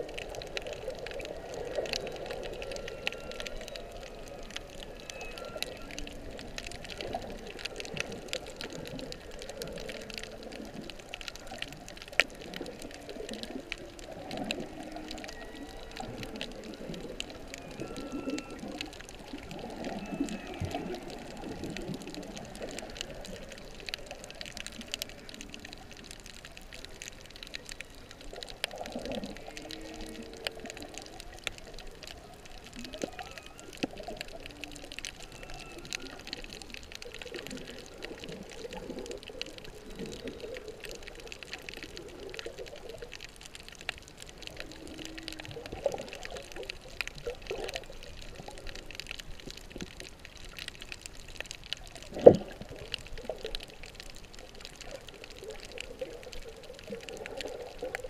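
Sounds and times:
crackle of fine clicks: 0:00.0 - 0:58.0
whale moans and groans: 0:00.1 - 0:43.2, 0:44.2 - 0:46.9.

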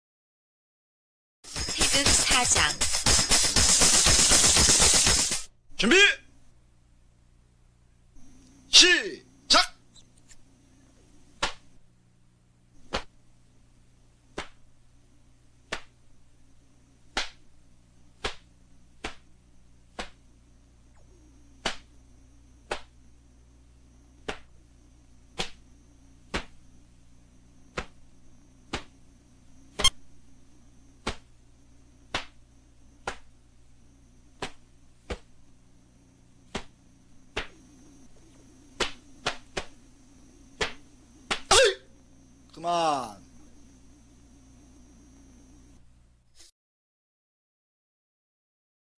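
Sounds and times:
faint electrical hum: 0:01.5 - 0:46.3
uniform fabric snapping: 0:40.6 - 0:41.5.

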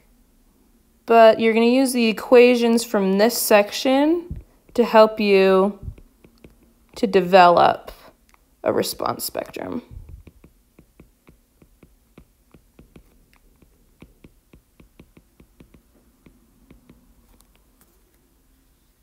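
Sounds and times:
stylus tapping on glass screen: 0:05.8 - 0:07.1, 0:09.9 - 0:17.7.

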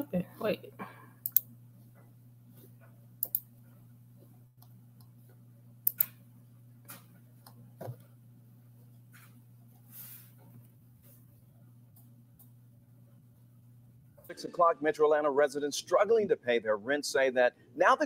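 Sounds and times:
low electrical hum: 0:00.0 - 0:18.0
computer mouse clicks: 0:01.2 - 0:01.5, 0:03.2 - 0:03.5, 0:05.9 - 0:06.2.

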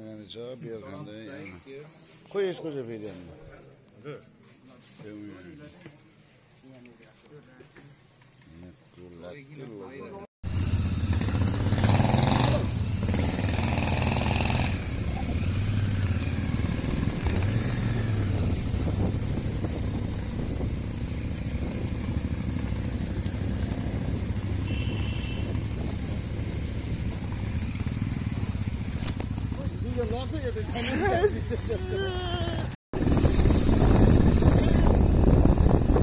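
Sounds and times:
motorcycle engines rumbling: 0:10.5 - 0:36.0
wind on microphone: 0:16.0 - 0:27.6, 0:33.0 - 0:36.0.

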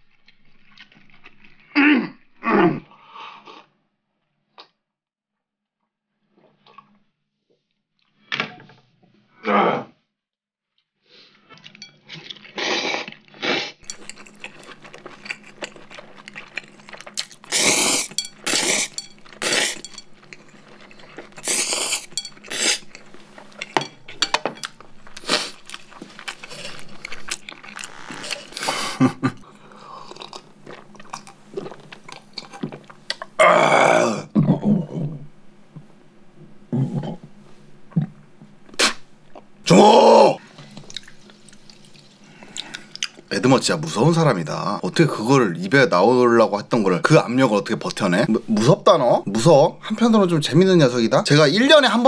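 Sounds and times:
chewing: 0:11.5 - 0:33.3, 0:40.6 - 0:43.3
slurping noodles: 0:12.5 - 0:19.9, 0:20.5 - 0:23.5, 0:25.2 - 0:32.0.

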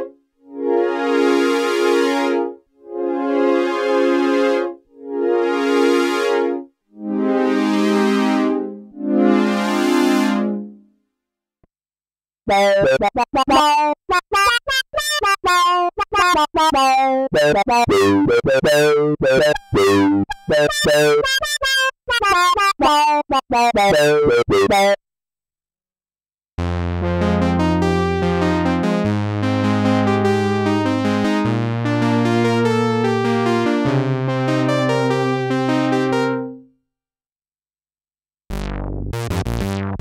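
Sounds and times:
synthesizer strings pad chords: 0:00.0 - 0:10.9, 0:26.8 - 0:36.6.

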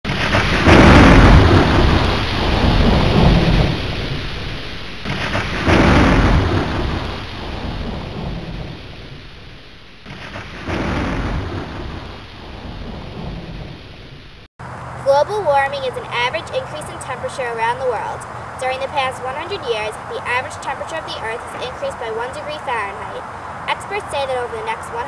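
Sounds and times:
rolling thunder: 0:00.1 - 0:14.5
steady rain: 0:00.1 - 0:25.0.

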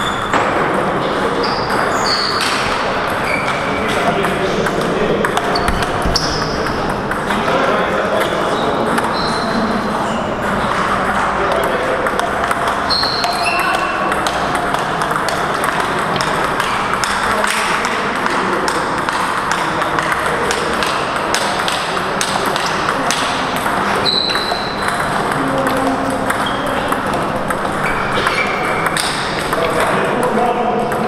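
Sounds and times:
hall background noise: 0:00.0 - 0:31.0
high squeak: 0:05.4 - 0:06.6.

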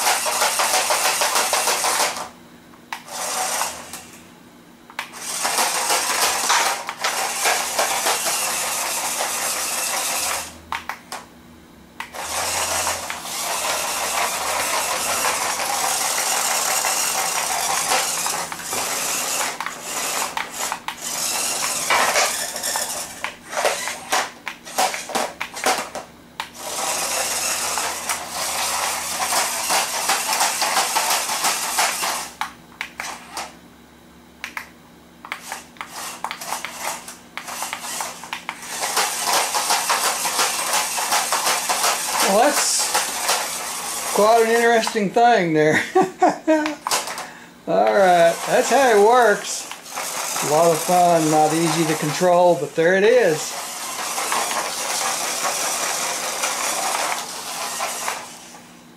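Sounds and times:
small electric motors whirring: 0:00.0 - 0:02.3, 0:02.9 - 0:04.2, 0:05.0 - 0:11.2, 0:12.0 - 0:32.4, 0:35.2 - 0:45.3, 0:46.0 - 0:58.7
plastic toy car clattering on floor: 0:20.3 - 0:26.0, 0:38.8 - 0:43.5, 0:53.3 - 0:58.3.

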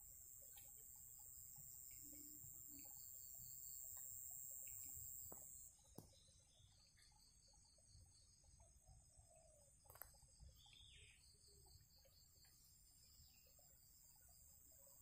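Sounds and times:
high insect buzz: 0:00.0 - 0:05.7
faint insects chirping: 0:00.0 - 0:15.0.

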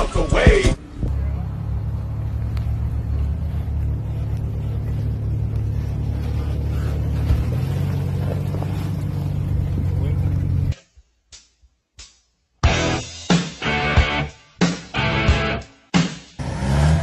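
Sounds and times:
engine running with pulsing rumble: 0:00.4 - 0:10.8.

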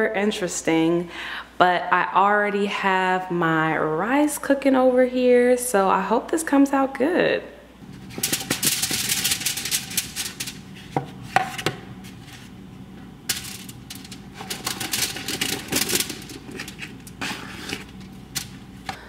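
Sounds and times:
food sliding onto foil: 0:07.9 - 0:12.5, 0:13.3 - 0:18.9.

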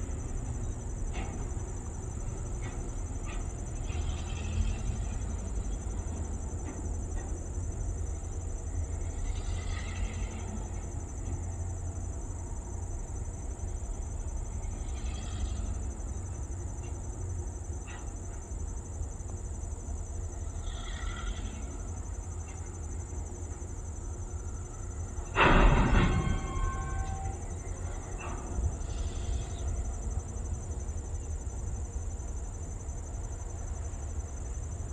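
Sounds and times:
crickets chirring: 0:00.0 - 0:34.9
distant diesel locomotive rumble: 0:00.0 - 0:34.9
burst of noise with ringing tone: 0:25.2 - 0:29.6.

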